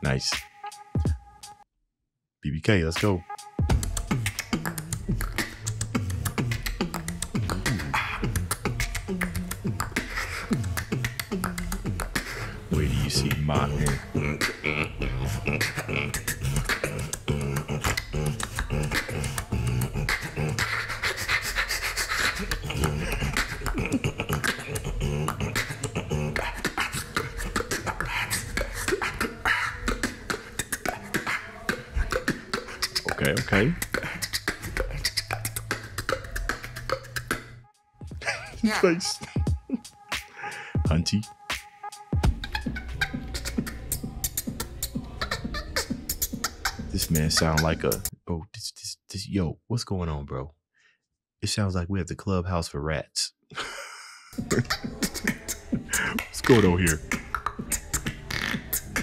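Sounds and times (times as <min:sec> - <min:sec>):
beatboxing clicks and bass: 0:03.0 - 0:37.7, 0:38.4 - 0:48.2, 0:54.4 - 0:59.0
short hissy mouth sounds: 0:03.8 - 0:12.6, 0:15.3 - 0:37.6, 0:54.5 - 0:59.0.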